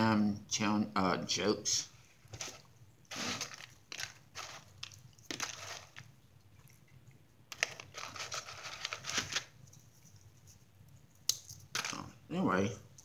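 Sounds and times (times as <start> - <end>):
rustling and crinkling on a table: 2.2 - 6.1, 7.5 - 10.7.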